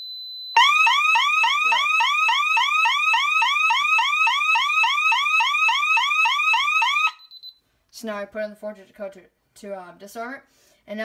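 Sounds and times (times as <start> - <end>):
burglar alarm siren whooping: 0.6 - 7.2.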